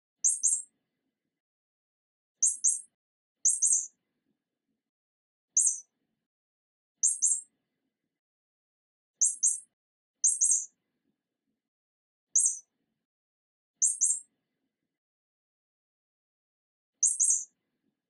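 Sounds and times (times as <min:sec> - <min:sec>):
mouse squeaks: 0:00.2 - 0:00.7, 0:02.4 - 0:03.9, 0:05.5 - 0:05.9, 0:07.0 - 0:07.5, 0:09.2 - 0:10.7, 0:12.3 - 0:12.7, 0:13.8 - 0:14.3, 0:17.0 - 0:17.5.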